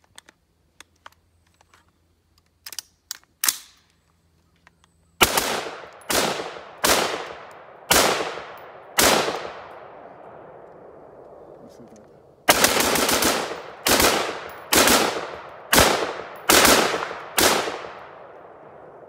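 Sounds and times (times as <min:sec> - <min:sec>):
rifle handling clicks: 0:00.0 - 0:05.0
rifle shots with echo: 0:05.2 - 0:11.4, 0:12.5 - 0:19.0.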